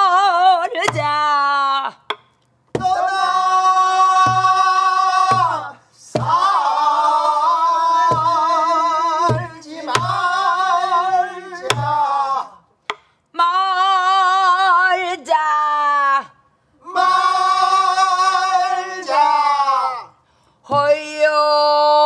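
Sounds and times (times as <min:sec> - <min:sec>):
group singing with vibrato: 0:02.8 - 0:12.7, 0:13.4 - 0:15.7, 0:16.8 - 0:22.0
barrel drum strikes: 0:04.2 - 0:05.6, 0:06.2 - 0:06.5, 0:08.1 - 0:08.4, 0:09.2 - 0:10.3, 0:11.7 - 0:12.0.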